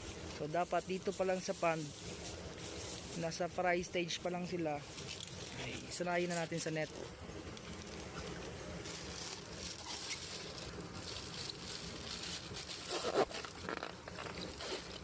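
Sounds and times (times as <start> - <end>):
plastic bag crinkling: 7.7 - 15.0.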